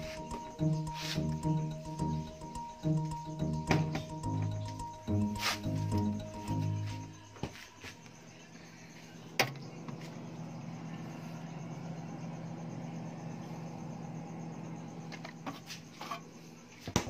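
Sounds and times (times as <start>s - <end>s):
knocks from doors and shelves: 3.6s - 4.1s.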